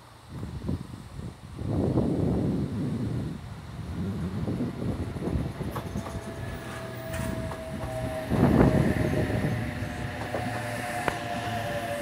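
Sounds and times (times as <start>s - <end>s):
train wheels rumbling on rail: 1.6s - 12.0s
train motor whine: 3.8s - 12.0s.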